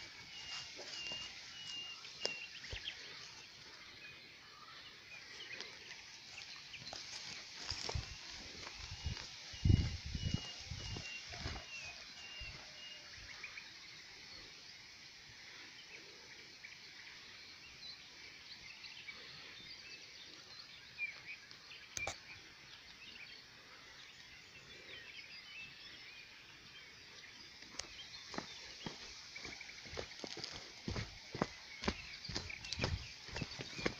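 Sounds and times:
birds chirping and singing: 0.0 - 5.7, 6.3 - 13.6, 24.2 - 33.9.

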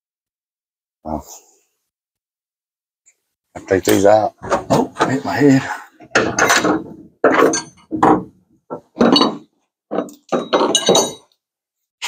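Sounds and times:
metal tools clinking: 6.2 - 7.9, 9.0 - 11.4.

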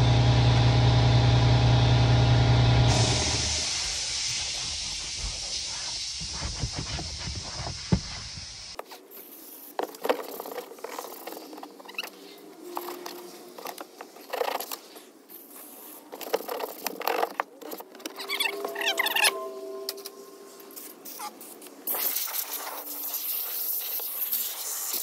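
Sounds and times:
compressed-air hose hissing: 2.9 - 12.6, 20.4 - 25.0
clicks and rattles of handling: 16.1 - 18.2
short squeaks: 18.1 - 21.4.

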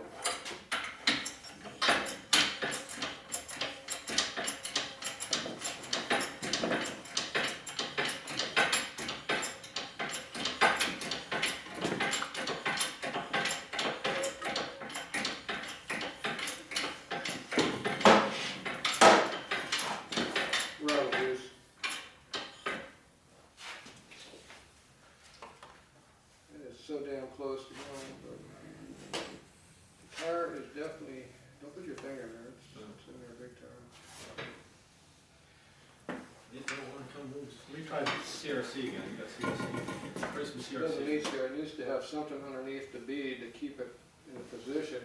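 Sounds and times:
hand tools clinking and clattering: 0.0 - 23.0, 38.0 - 41.4
low voices: 27.4 - 29.4.

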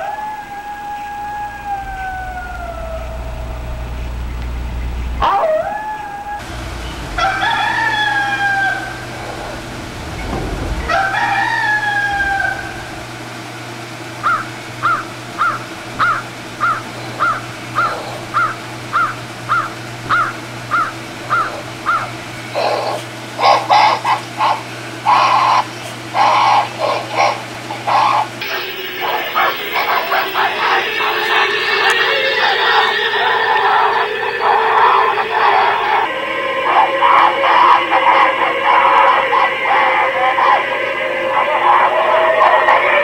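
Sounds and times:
low steady hum: 0.0 - 17.7
animal-like howling calls: 0.0 - 43.0
short high chirps: 28.4 - 36.6.

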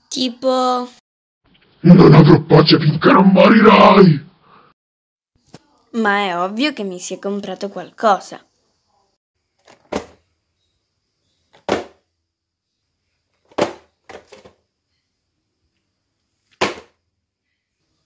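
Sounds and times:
boxed figures slapping onto a bed: 11.6 - 12.0, 13.5 - 14.5, 16.5 - 17.0.

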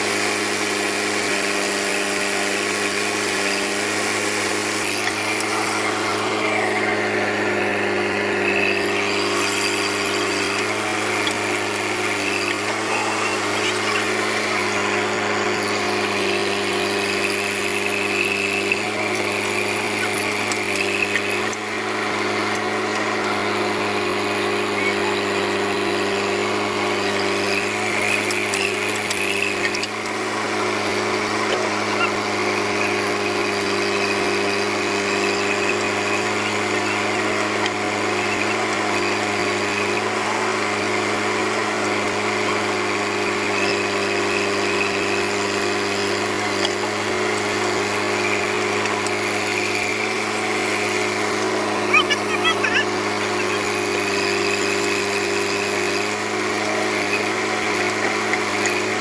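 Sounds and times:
backhoe digging mud: 0.0 - 59.0
diesel engine droning: 0.0 - 59.0.

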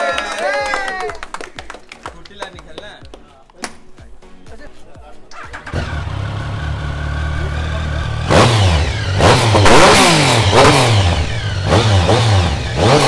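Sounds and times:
motorcycle engine idling and revving: 5.3 - 13.0.

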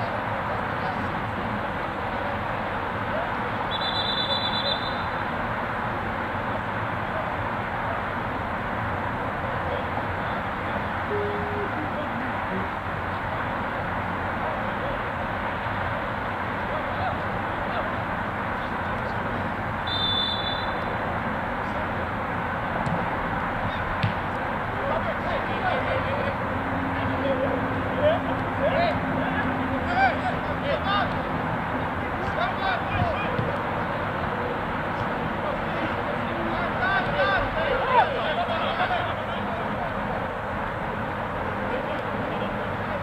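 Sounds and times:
background noise rush: 0.0 - 43.0
outdoor noise with low rumble: 0.0 - 43.0
referee whistle: 3.7 - 5.2, 19.8 - 20.9.

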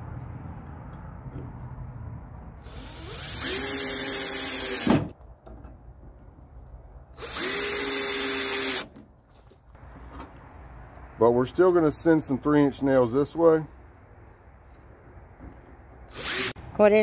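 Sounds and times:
cordless drill whining: 2.6 - 4.9, 7.2 - 8.9, 16.1 - 16.6.

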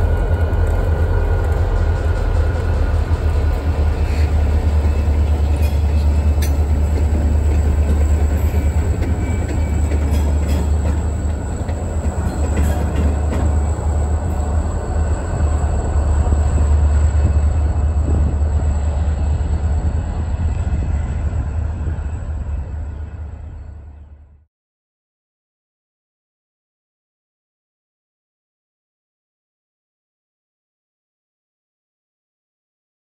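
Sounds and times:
diesel locomotive engine rumble: 0.0 - 24.5.

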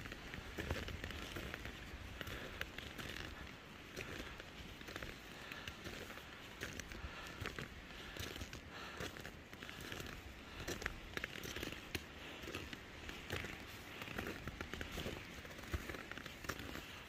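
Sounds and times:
boots crunching in snow: 0.0 - 17.0.

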